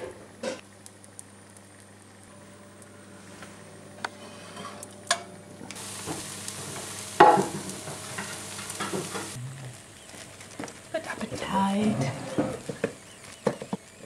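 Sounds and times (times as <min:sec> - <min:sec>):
omelette sizzling in skillet: 0:00.5 - 0:14.0
pan and spatula clattering: 0:06.0 - 0:09.4.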